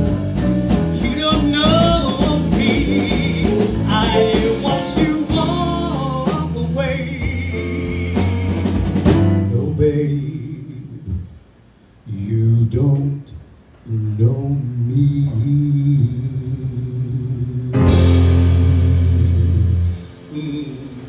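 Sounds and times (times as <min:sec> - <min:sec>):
man singing: 0:00.0 - 0:11.4, 0:12.1 - 0:21.0
drum kit: 0:00.0 - 0:11.6, 0:17.7 - 0:21.0.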